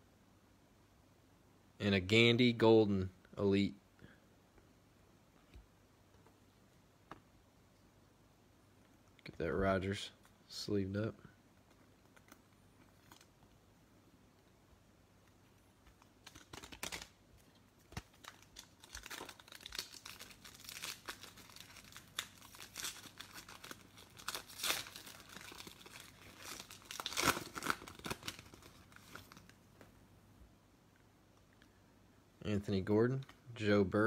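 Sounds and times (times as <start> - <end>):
foil wrapper crinkling and tearing: 16.0 - 29.6.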